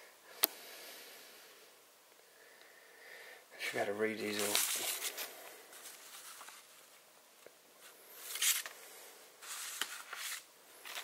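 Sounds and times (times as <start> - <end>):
paper rustling: 4.2 - 7.0, 7.8 - 8.8, 9.4 - 11.0.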